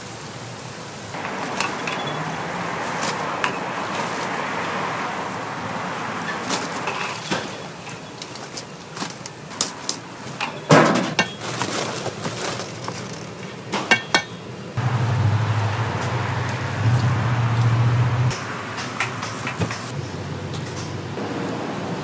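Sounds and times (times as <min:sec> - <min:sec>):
metal utensils clinking: 0:01.2 - 0:04.1, 0:06.2 - 0:14.5.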